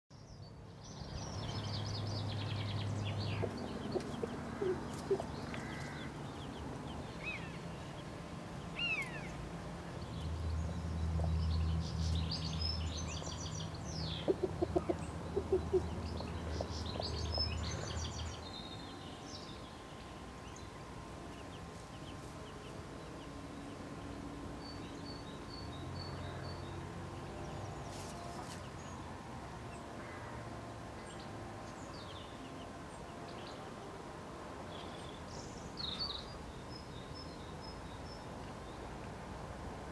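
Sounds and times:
songbirds chirping: 0:00.1 - 0:39.9
chicks peeping: 0:02.6 - 0:06.6, 0:14.0 - 0:18.4
hen clucking: 0:03.3 - 0:06.0, 0:14.2 - 0:17.8.

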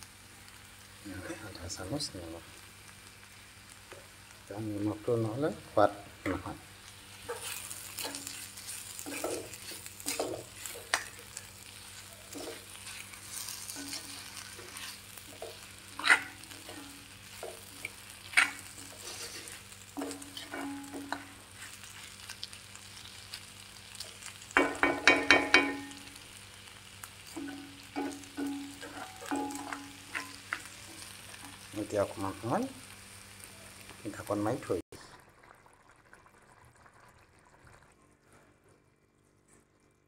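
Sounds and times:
food sizzling in a pan: 0:00.0 - 0:38.5
spatula scraping and knocking pan: 0:07.2 - 0:21.8, 0:24.6 - 0:26.0, 0:27.3 - 0:31.7
spatula clanking on pan: 0:09.0 - 0:11.2, 0:13.4 - 0:19.4, 0:20.0 - 0:21.4, 0:24.6 - 0:26.1, 0:27.3 - 0:30.7.

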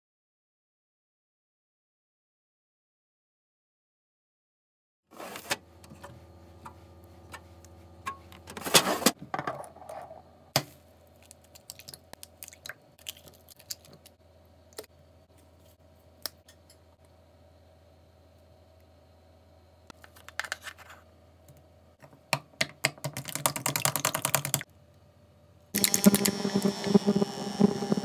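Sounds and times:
low hum: 0:25.8 - 0:28.0.

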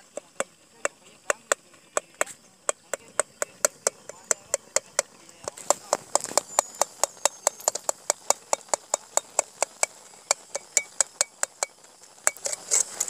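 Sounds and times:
food frying: 0:00.0 - 0:13.0.

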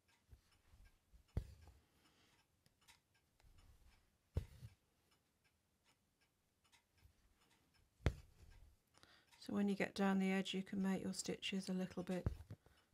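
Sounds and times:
needle piercing taut fabric: 0:03.4 - 0:04.8, 0:08.0 - 0:08.7, 0:11.8 - 0:12.7.

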